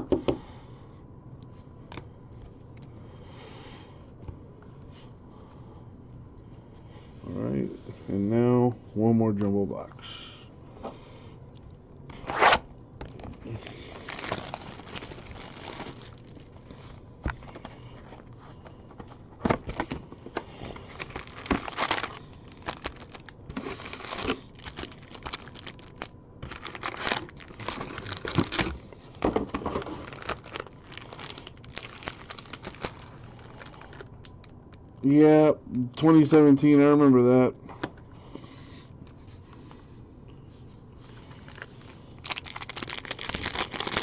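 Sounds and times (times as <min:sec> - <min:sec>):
wrapper tearing and crinkling: 0:12.3 - 0:16.6, 0:20.8 - 0:34.6, 0:41.4 - 0:44.0.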